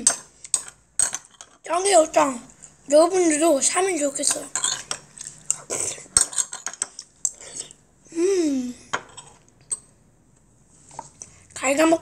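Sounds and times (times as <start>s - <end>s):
child's voice: 1.7s - 4.6s, 11.6s - 12.0s.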